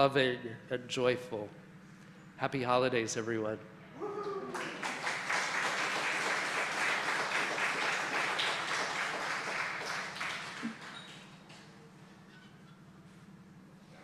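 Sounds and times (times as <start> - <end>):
audience clapping: 4.2 - 11.7.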